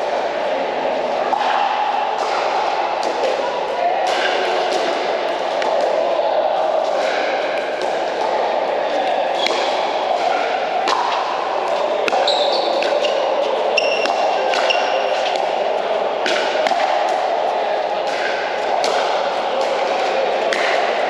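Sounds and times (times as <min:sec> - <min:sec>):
paddles hitting plastic ball: 0:10.8 - 0:13.2.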